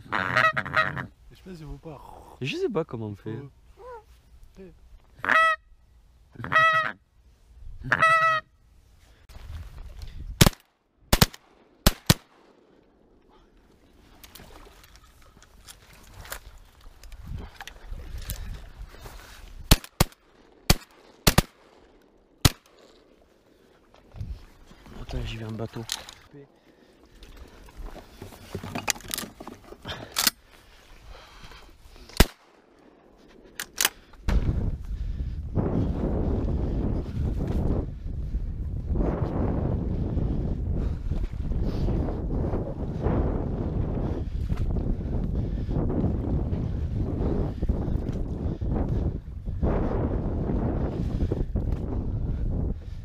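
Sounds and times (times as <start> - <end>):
wind buffeting microphone: 9.3 - 11.2, 14.3 - 19.8, 24.0 - 26.5, 33.1 - 53.0
shotgun blasts: 10.4 - 12.5, 19.7 - 21.7, 32.2 - 32.6
handling clicks and knocks: 28.2 - 30.4.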